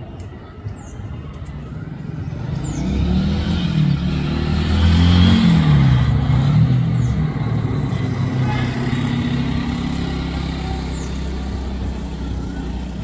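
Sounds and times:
vehicle engine revving: 2.3 - 13.0.

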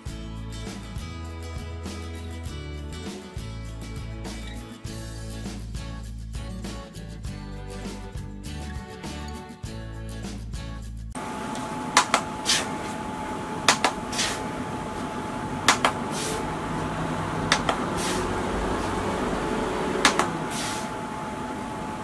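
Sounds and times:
desk fan running: 11.2 - 22.0
fan button clicks: 11.4 - 12.7, 13.6 - 14.2, 15.6 - 16.2, 17.4 - 18.0, 19.9 - 20.5.

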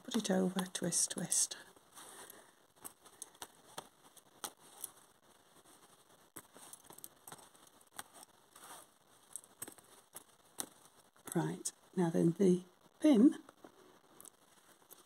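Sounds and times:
lace bobbins clicking together: 0.0 - 1.0, 2.2 - 11.8.

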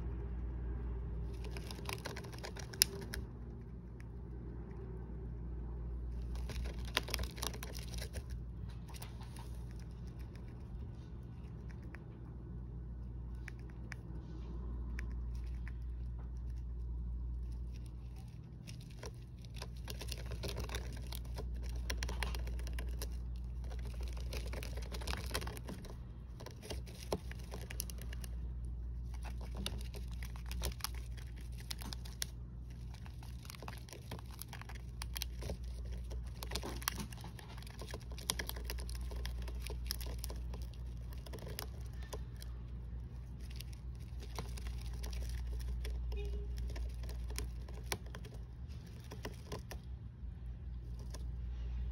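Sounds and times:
hamster gnawing and rummaging: 0.0 - 51.9
steady low hum: 0.0 - 51.9.

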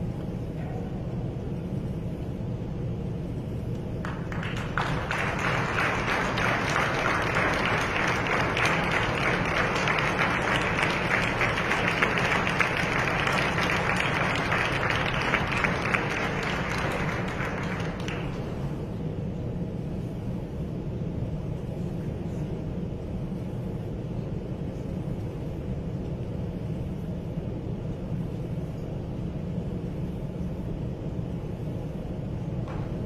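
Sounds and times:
audience applauding: 4.0 - 18.5
crowd murmur: 4.3 - 19.1.

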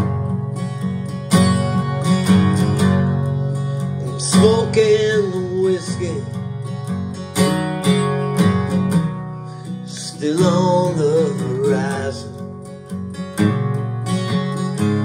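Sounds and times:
acoustic guitar strumming: 0.0 - 15.0
person singing: 3.8 - 6.4, 9.6 - 12.4.

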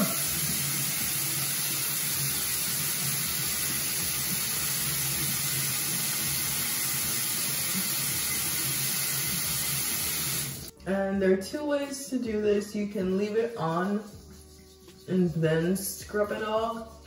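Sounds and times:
faucet running into sink: 0.0 - 10.7.

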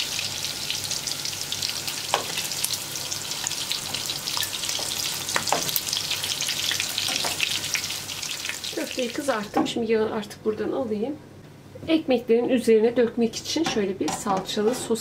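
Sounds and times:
meatballs sizzling in oil: 0.0 - 9.6.

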